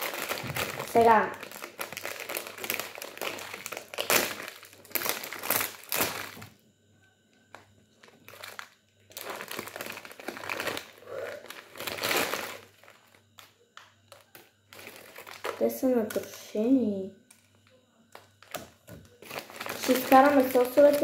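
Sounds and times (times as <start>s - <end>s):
plastic packet tearing and crinkling: 0.0s - 6.5s, 8.0s - 13.5s, 14.1s - 15.8s, 18.1s - 21.0s.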